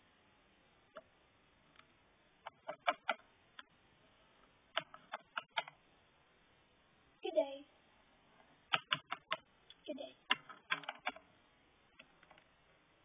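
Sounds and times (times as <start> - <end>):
plastic toy clicking: 2.5 - 3.2, 4.7 - 5.8, 8.7 - 9.5, 10.2 - 11.3.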